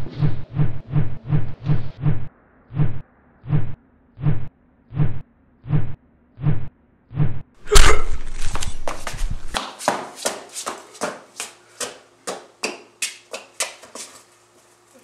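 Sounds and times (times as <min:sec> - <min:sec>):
running footsteps on concrete: 0:08.1 - 0:14.7.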